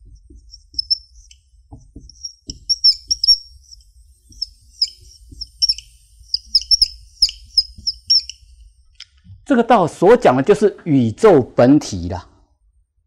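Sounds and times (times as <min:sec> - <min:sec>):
marker squeaking on whiteboard: 0:00.0 - 0:08.6.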